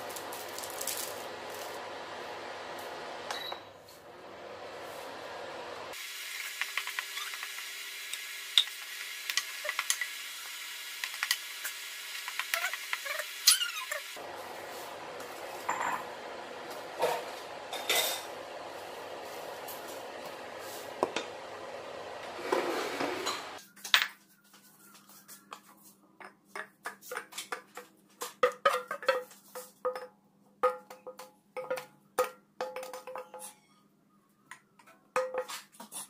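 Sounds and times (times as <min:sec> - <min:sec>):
wooden spatula scraping steel pan: 0:22.3 - 0:23.6.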